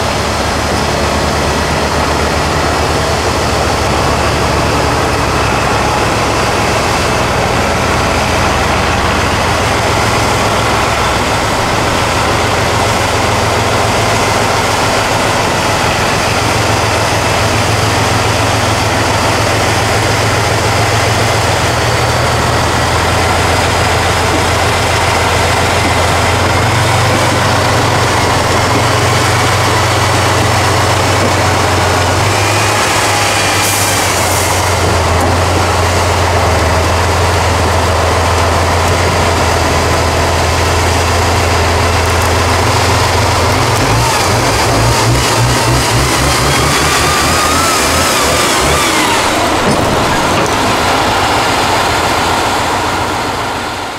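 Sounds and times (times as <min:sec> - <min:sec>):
heavy diesel engine labouring: 0:00.0 - 0:53.9.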